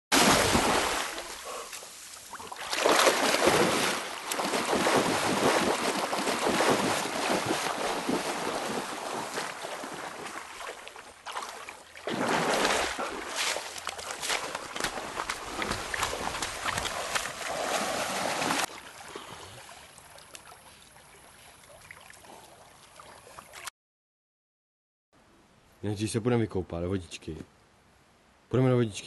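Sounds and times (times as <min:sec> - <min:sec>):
dog swimming and splashing: 0:00.1 - 0:23.7.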